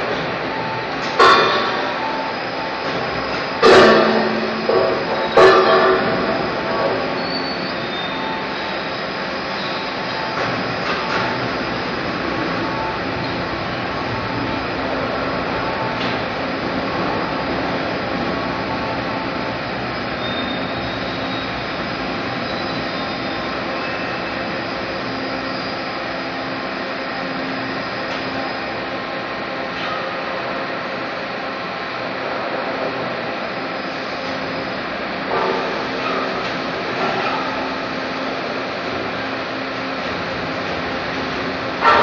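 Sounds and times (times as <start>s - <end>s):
machinery roar: 0.0s - 42.0s.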